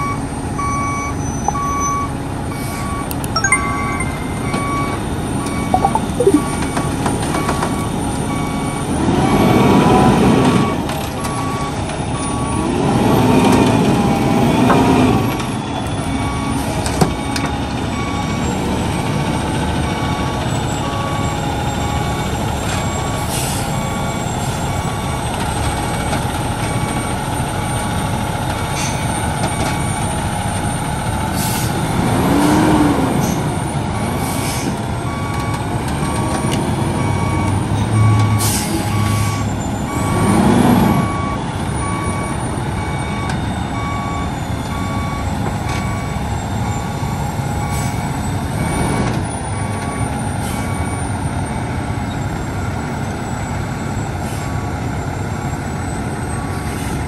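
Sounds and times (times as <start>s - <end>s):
backup alarm beeping: 3.2s - 6.6s
diesel truck engine: 6.6s - 57.0s.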